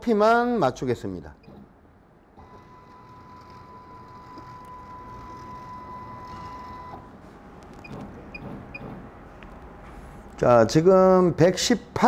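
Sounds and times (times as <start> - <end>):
machine drive whining: 2.3 - 10.5.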